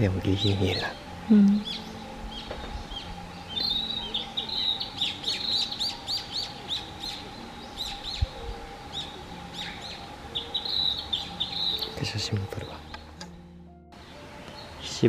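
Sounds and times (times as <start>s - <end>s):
bird singing high chirps and whistles: 1.6s - 13.0s.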